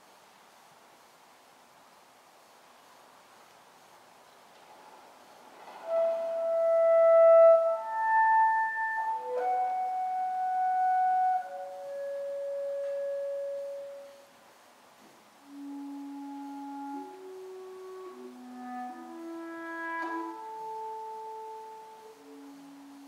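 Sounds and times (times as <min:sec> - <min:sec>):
clarinet playing long notes: 0:05.6 - 0:14.3, 0:15.4 - 0:23.0.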